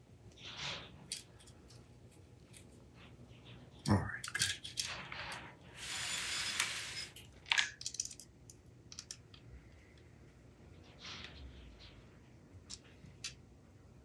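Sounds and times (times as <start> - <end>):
metal parts clicking and clinking: 7.0 - 8.3.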